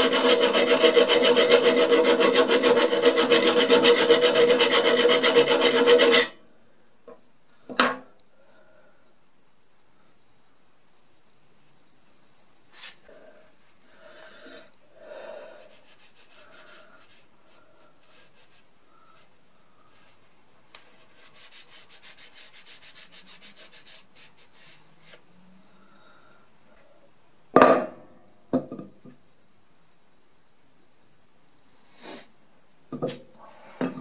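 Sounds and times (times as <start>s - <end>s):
cloth rag rubbing metal: 0.0s - 6.3s, 15.6s - 18.7s, 20.9s - 25.2s.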